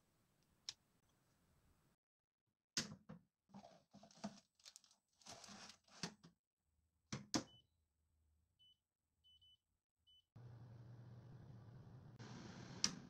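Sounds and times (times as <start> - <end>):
baking paper rustling: 3.6 - 6.1.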